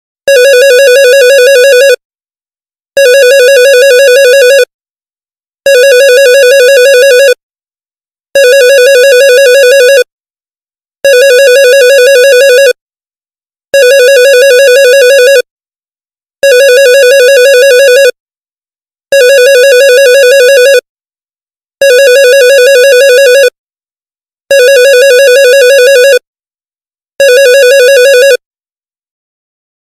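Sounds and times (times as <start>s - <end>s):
electronic phone ringtone: 0.3s - 2.0s, 3.0s - 4.7s, 5.7s - 7.4s, 8.4s - 10.1s, 11.0s - 12.8s, 13.8s - 15.5s, 16.4s - 18.2s, 19.1s - 20.9s, 21.8s - 23.6s, 24.5s - 26.3s, 27.2s - 28.4s.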